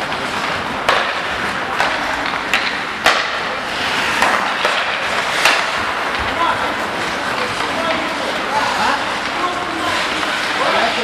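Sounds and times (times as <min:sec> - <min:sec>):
arena noise: 0:00.0 - 0:11.0
hockey sticks and puck clacking: 0:00.0 - 0:11.0
skates scraping ice: 0:00.0 - 0:11.0.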